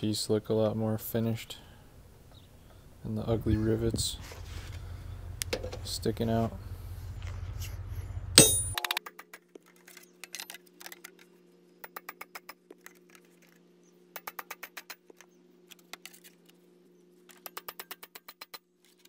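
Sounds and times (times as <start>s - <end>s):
hammer tapping on metal: 8.4s - 8.8s.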